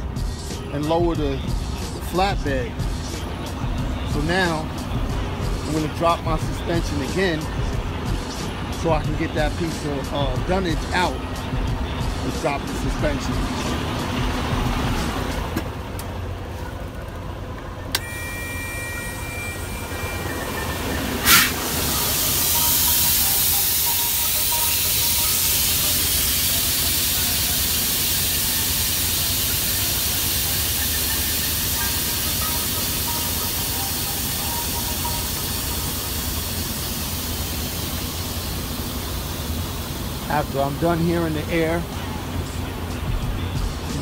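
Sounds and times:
truck engine idling: 0:00.0 - 0:44.0
air hissing from airbags: 0:19.6 - 0:41.0.

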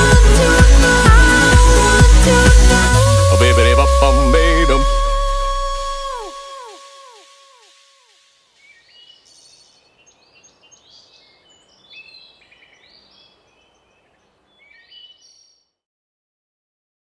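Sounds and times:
echoing song notes: 0:00.0 - 0:06.5
faint forest hiss: 0:06.5 - 0:15.6
small birds chirping: 0:08.4 - 0:15.7.

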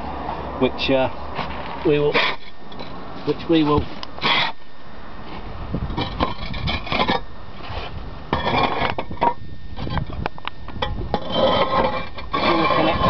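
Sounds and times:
roof tiles clinking and scraping: 0:01.5 - 0:04.6, 0:05.9 - 0:13.0.

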